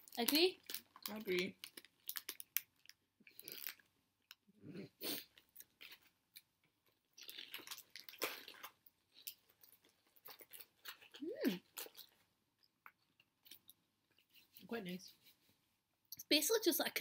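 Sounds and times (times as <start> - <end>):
plastic packet crinkling: 0.0 - 3.9
crunching and chewing: 0.0 - 14.6.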